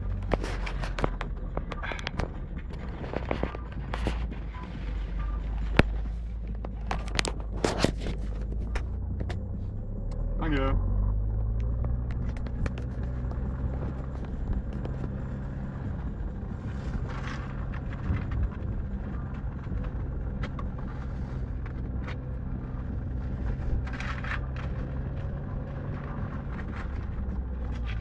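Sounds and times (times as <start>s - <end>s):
car engine and tyres droning: 0.0s - 28.0s.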